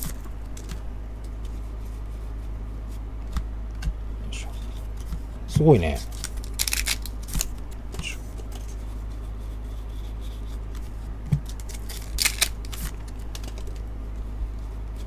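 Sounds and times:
low steady hum: 0.0 - 15.0
foil wrapper crinkling and tearing: 6.0 - 7.5, 11.4 - 13.8.

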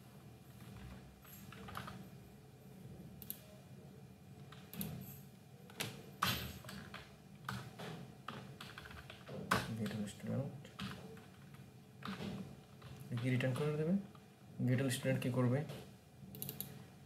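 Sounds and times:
computer keyboard typing: 0.6 - 2.0, 6.6 - 10.1, 10.7 - 13.9, 16.3 - 16.8.

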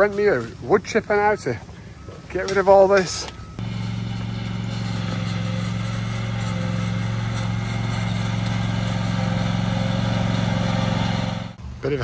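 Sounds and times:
small petrol engine running: 3.6 - 11.6.

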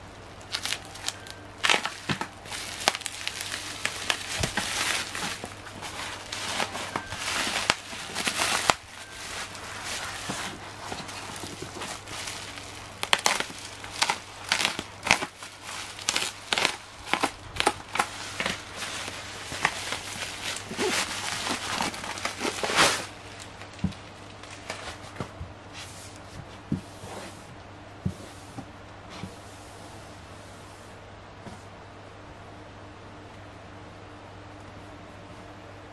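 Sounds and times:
plastic wrapping tearing and crackling: 0.4 - 25.2.

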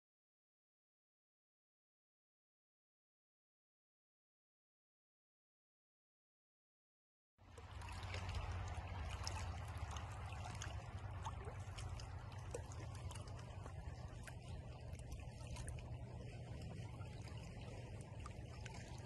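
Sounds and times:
low steady rumble: 7.4 - 19.0
small waves lapping: 7.4 - 19.0.

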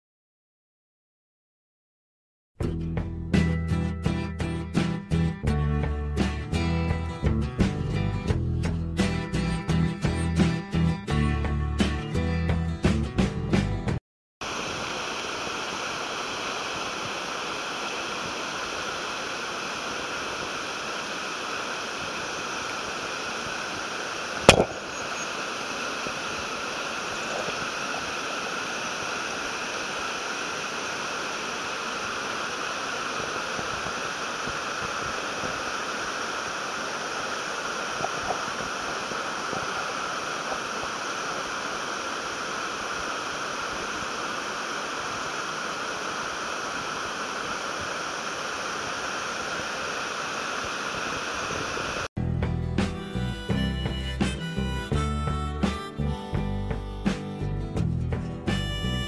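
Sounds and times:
mountain torrent rushing over rocks: 14.4 - 52.1
sharp click: 24.4 - 24.8.

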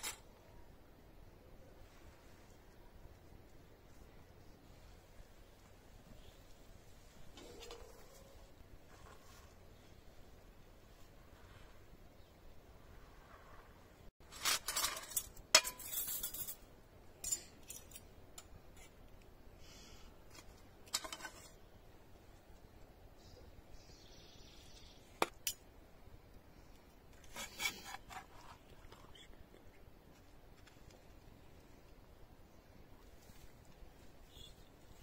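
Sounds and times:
metal utensils scraping griddle pan: 14.3 - 16.6, 27.2 - 28.6.

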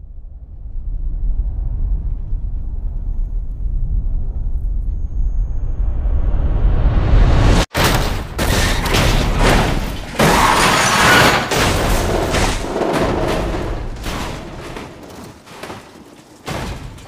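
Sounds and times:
debris scattering: 7.7 - 17.0
race car crash impacts and scraping: 7.8 - 17.0.

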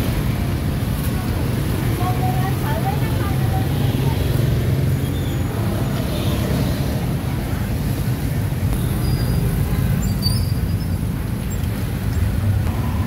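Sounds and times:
street traffic hum: 0.0 - 13.0.

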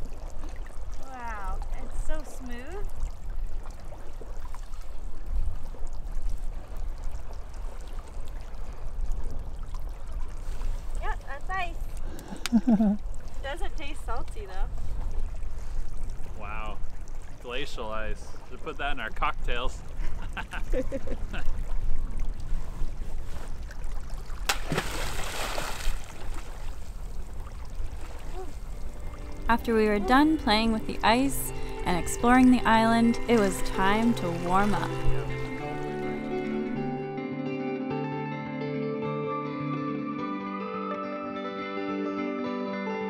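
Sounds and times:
water splash: 23.6 - 29.5, 31.4 - 36.2
ice smacking into water: 24.5 - 26.3.

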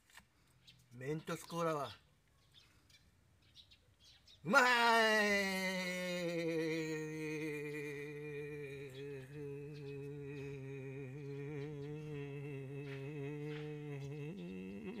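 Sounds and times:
man humming low note: 4.5 - 15.0.

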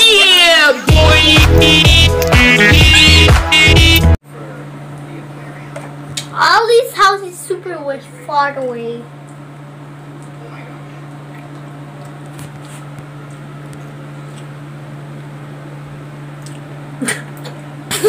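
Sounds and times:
low mechanical hum: 4.2 - 18.0.

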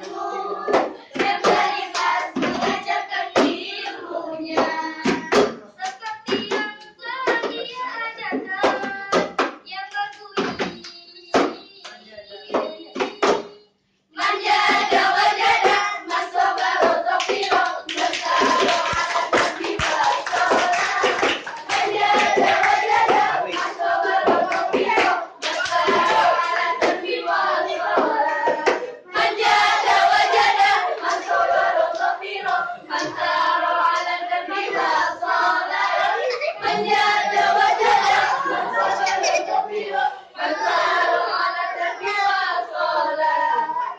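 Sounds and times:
girls singing in unison: 0.0 - 43.9
hand claps: 4.5 - 13.6, 14.2 - 27.2, 27.8 - 29.0.

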